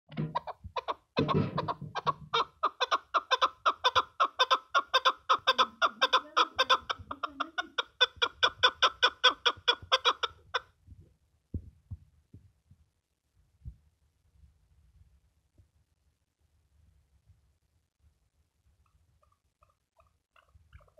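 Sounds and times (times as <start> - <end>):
partridge calling chuk notes: 2.4 - 10.3.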